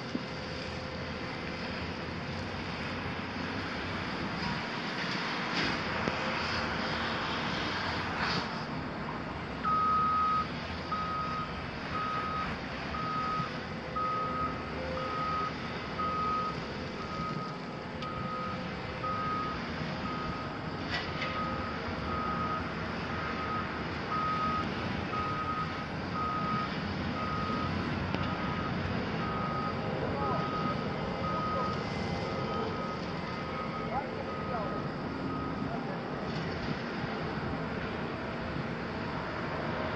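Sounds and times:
diesel engines running: 0:00.0 - 0:39.9
reversing alarm beeping: 0:09.6 - 0:36.1.

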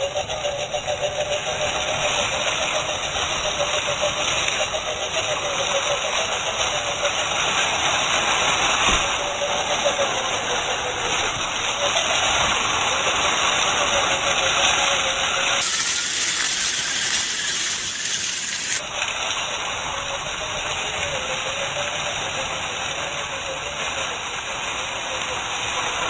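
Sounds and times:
electric motor whining: 0:15.6 - 0:18.8.

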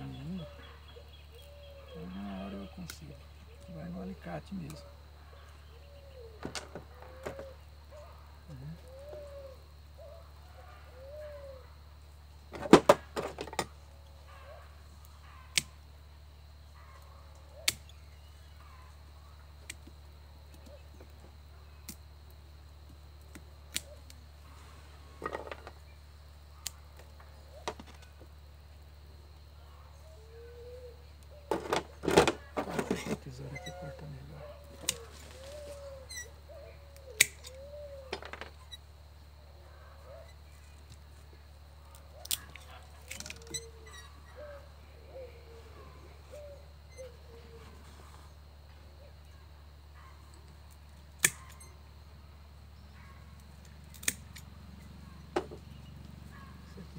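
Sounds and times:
bird cooing softly: 0:00.0 - 0:11.8, 0:29.6 - 0:38.3, 0:39.6 - 0:40.4, 0:42.0 - 0:49.4
cutters snipping wire and branches: 0:17.4 - 0:18.0, 0:34.6 - 0:36.2, 0:36.9 - 0:37.6, 0:41.9 - 0:43.8, 0:50.7 - 0:51.6, 0:53.5 - 0:54.6.

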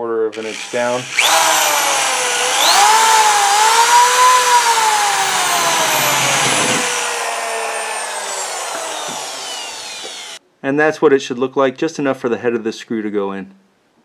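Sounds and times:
power drill boring into wood: 0:00.3 - 0:10.4.

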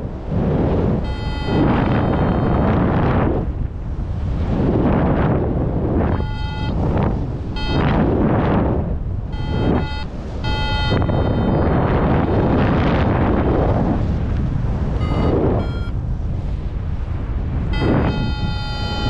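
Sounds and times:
wind rushing over microphone: 0:00.0 - 0:19.0
variometer electronic beeps: 0:01.0 - 0:03.0, 0:06.1 - 0:08.1, 0:09.3 - 0:12.8, 0:15.0 - 0:16.0, 0:17.7 - 0:19.0.

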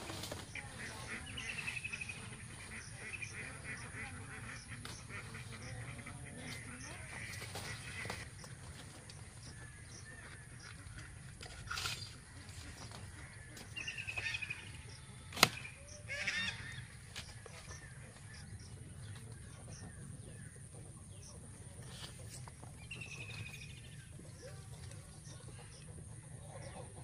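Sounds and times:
birds calling: 0:00.0 - 0:27.0
plant stalk snapping: 0:15.3 - 0:15.6.

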